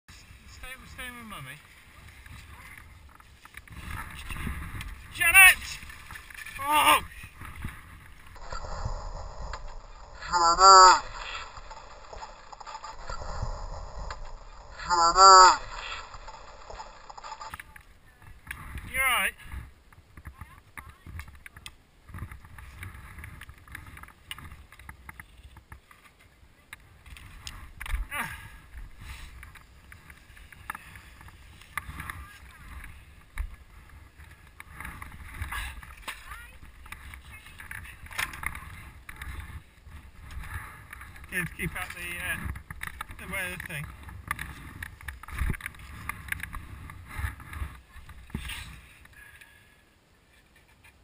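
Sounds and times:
skis scraping over snow: 0.1s - 10.2s
wind rumble on microphone: 1.8s - 10.3s
wind buffeting microphone: 2.2s - 6.2s.

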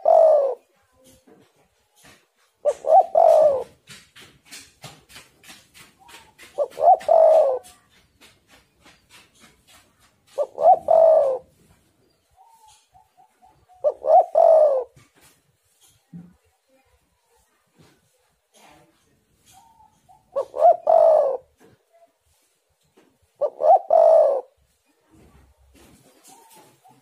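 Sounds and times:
dove cooing: 0.0s - 1.2s, 2.0s - 4.0s, 5.4s - 15.1s, 19.4s - 21.7s, 23.3s - 24.6s, 25.8s - 27.0s.

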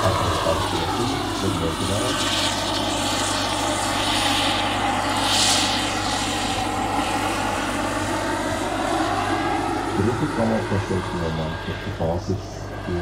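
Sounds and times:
model helicopter turbine and rotor: 0.0s - 13.0s.

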